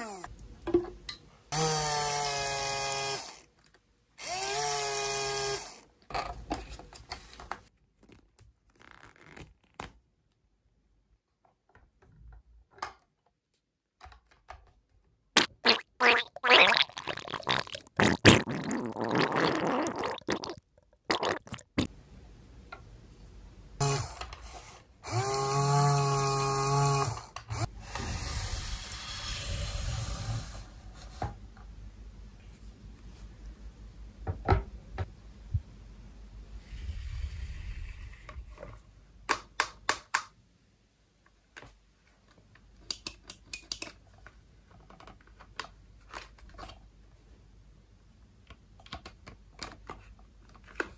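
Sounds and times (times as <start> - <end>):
plastic toys clicking and tapping: 42.8 - 44.1.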